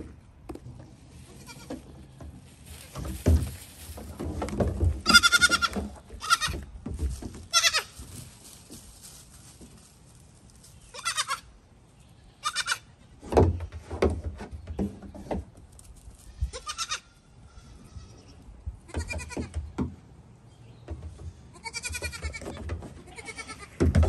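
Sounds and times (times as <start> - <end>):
goat kids bleating: 1.3 - 3.1, 5.0 - 6.7, 7.5 - 8.0, 10.9 - 13.0, 16.2 - 19.6, 21.5 - 23.8.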